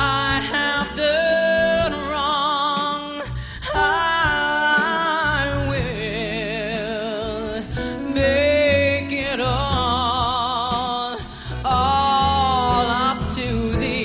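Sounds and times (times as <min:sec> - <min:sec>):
woman singing into microphone: 0:00.0 - 0:14.0
band accompaniment: 0:03.8 - 0:14.0.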